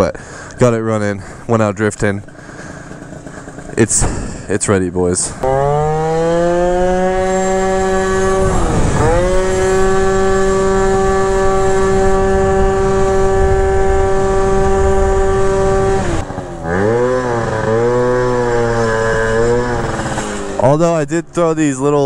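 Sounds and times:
two-stroke scooter engine revving: 0:00.0 - 0:21.1
wind on microphone: 0:05.3 - 0:20.6.

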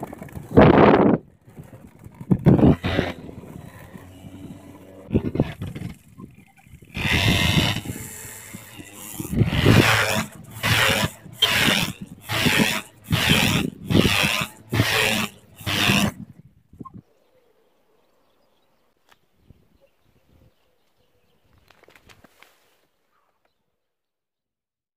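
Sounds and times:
scooter engine revving: 0:00.0 - 0:16.2.

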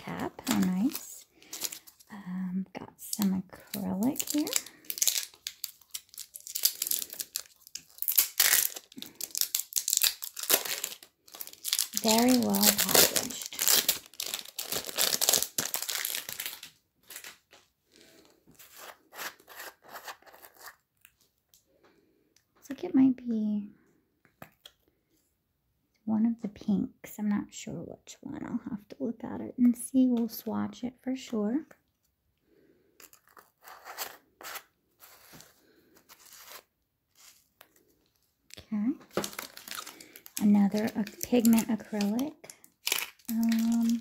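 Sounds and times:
plastic packaging crinkling: 0:00.0 - 0:02.2, 0:03.0 - 0:21.3, 0:33.0 - 0:44.0.

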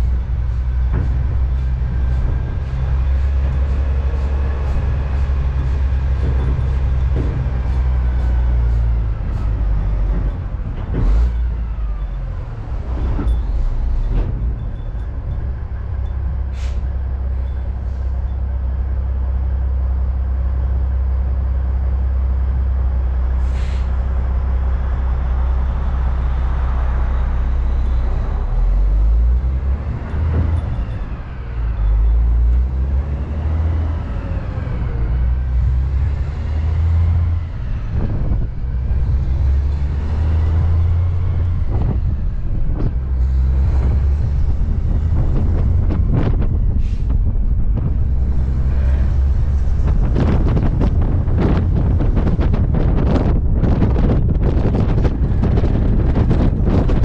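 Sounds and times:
knocks and rattles from bumps: 0:00.0 - 0:16.5
truck engine rumble: 0:00.0 - 0:57.0
short hisses: 0:23.5 - 0:23.9.

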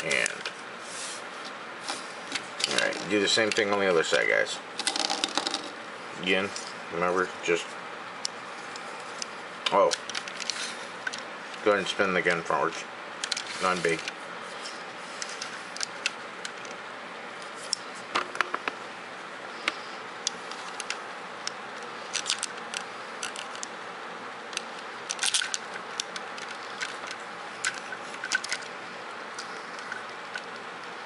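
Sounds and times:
plastic toy parts clicking: 0:22.1 - 0:23.7, 0:24.5 - 0:28.7.

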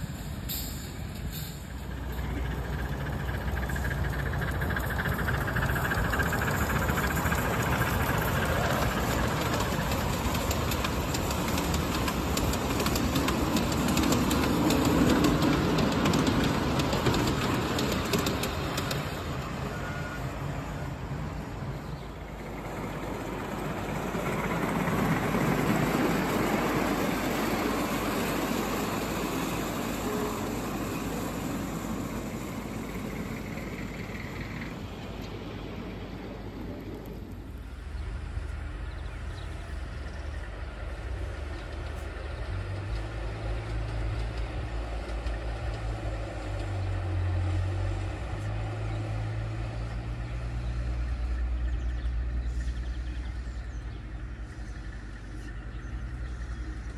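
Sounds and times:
small train wheels clattering on rails: 0:00.0 - 0:56.9.

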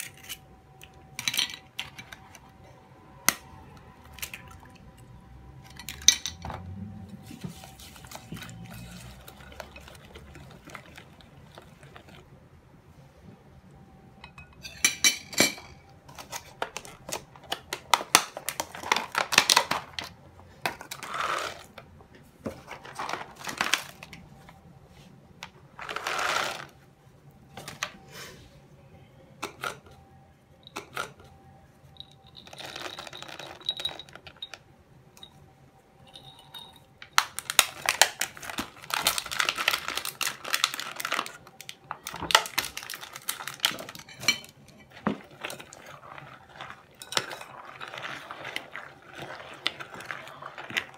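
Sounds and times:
nuts rattling into bowl: 0:25.8 - 0:26.7, 0:32.0 - 0:34.6.

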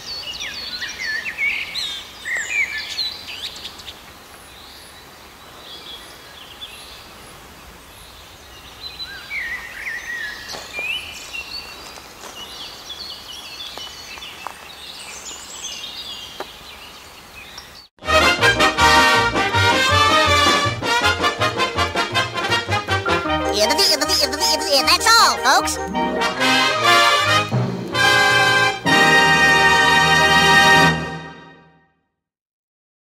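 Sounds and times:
open-air background hiss: 0:00.0 - 0:17.9
small birds singing and chirping: 0:00.0 - 0:17.9
brass band music: 0:18.0 - 0:31.7.

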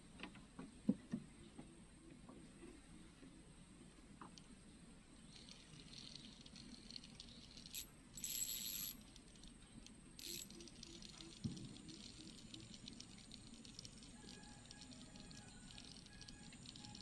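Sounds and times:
fishing reel rattling: 0:05.3 - 0:17.0.

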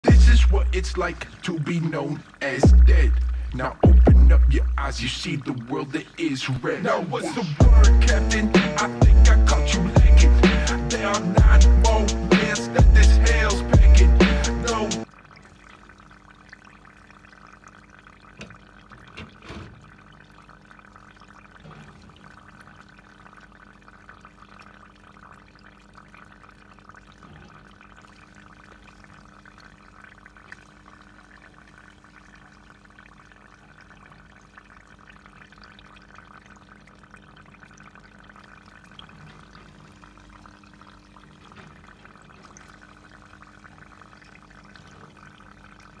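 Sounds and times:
low even hum: 0:00.0 - 0:46.0
water trickling: 0:00.0 - 0:46.0.

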